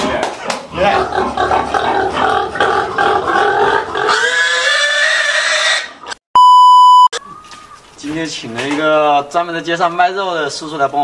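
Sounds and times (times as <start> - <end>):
pig squealing: 0.7 - 6.2
test-tone beep: 6.4 - 7.2.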